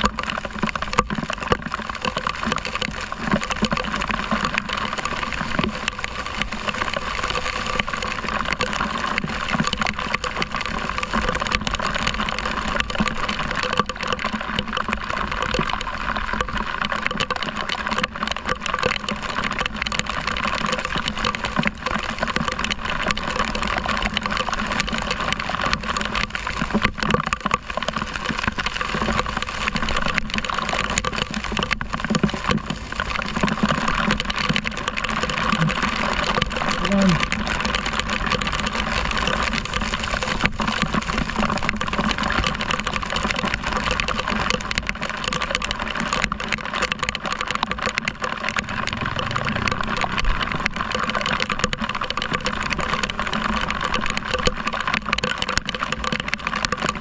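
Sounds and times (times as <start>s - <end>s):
heavy rain and tyre spray: 0.0s - 57.0s
motorcycle engine running: 48.4s - 52.0s.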